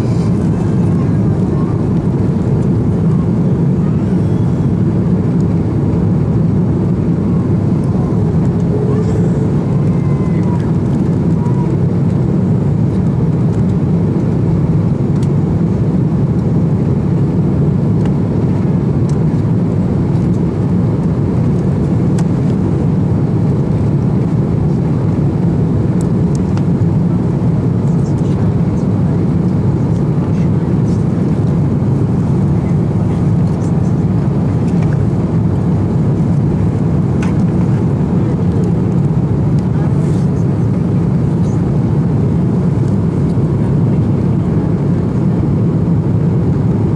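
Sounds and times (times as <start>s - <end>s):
jet engines rumbling: 0.0s - 46.9s.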